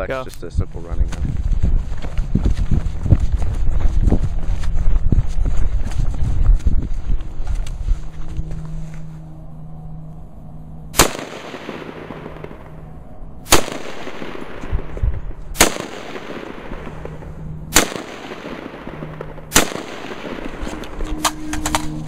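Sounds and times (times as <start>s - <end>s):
rifle shots with rolling echo: 10.9s - 22.0s.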